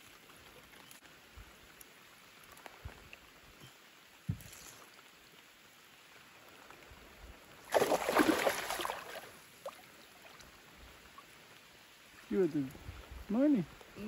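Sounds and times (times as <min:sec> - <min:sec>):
light rain pattering on water: 0:00.0 - 0:14.0
fish thrashing and splashing: 0:07.7 - 0:09.3.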